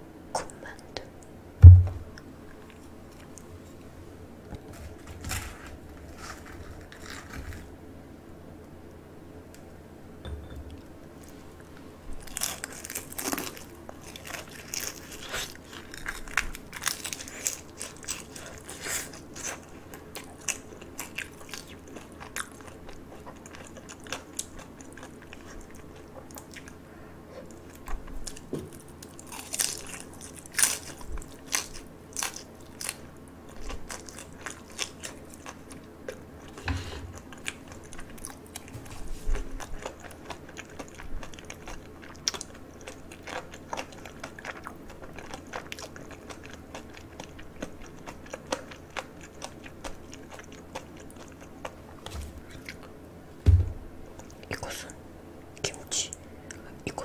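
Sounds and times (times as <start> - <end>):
crunching fried food: 4.6 - 7.8, 12.2 - 26.8, 27.5 - 36.6, 37.2 - 53.0.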